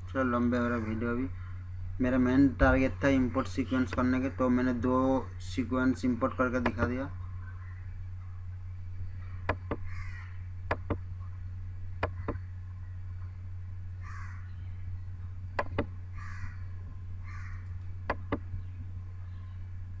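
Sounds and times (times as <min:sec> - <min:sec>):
steady low hum: 0:00.0 - 0:20.0
bird rasping calls: 0:09.0 - 0:11.1, 0:12.0 - 0:13.0, 0:14.0 - 0:14.8, 0:15.6 - 0:18.7.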